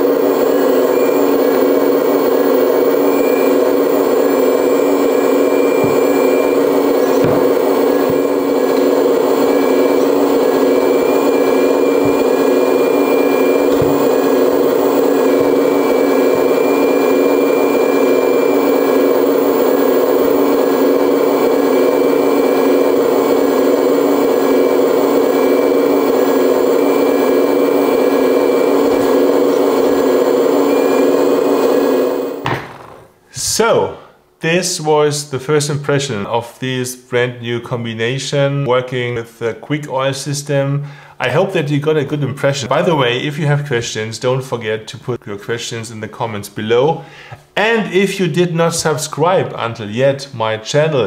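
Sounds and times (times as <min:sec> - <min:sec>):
hydraulic pump humming: 0:00.0 - 0:33.0
high whine: 0:00.0 - 0:33.7.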